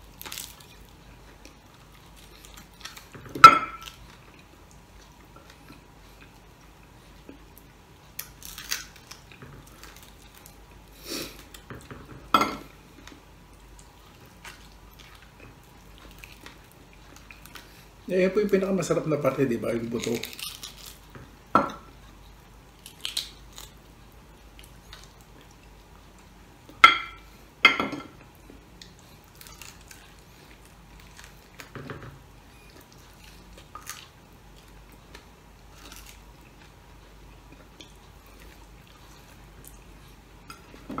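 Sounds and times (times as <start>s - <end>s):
chewing crunchy bone: 28.4s - 31.8s, 32.5s - 40.7s.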